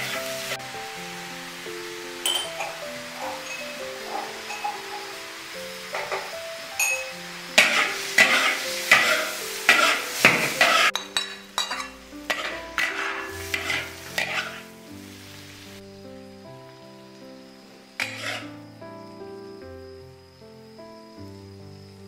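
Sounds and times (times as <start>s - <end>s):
food sizzling: 0.0s - 20.0s
metal spatula scraping wok: 2.3s - 5.2s, 7.6s - 14.8s, 18.0s - 18.5s.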